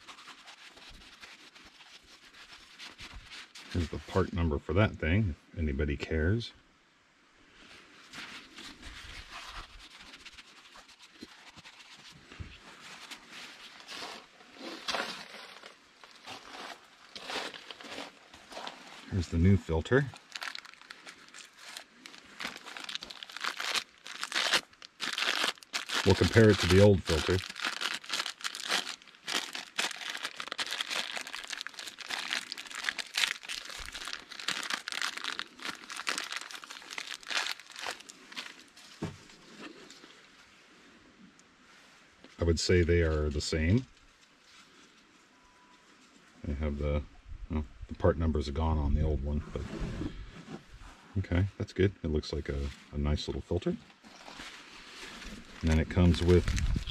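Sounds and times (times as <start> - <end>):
paper towels rustling: 8.1 - 19.4, 20.0 - 39.9, 54.1 - 56.9
plastic bag crinkling: 13.0 - 39.0, 54.1 - 56.9.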